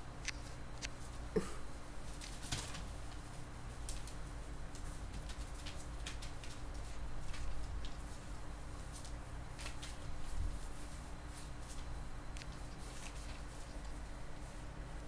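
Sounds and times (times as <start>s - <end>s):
paws scratching on paper: 2.0s - 15.0s.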